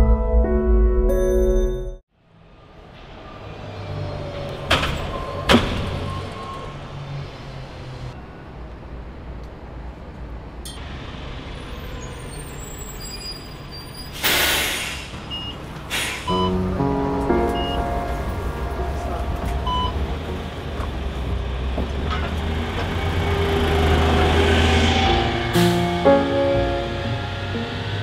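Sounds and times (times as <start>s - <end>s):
bus engine rumbling: 2.2s - 28.0s
air brake hiss: 14.1s - 15.2s, 15.9s - 16.5s.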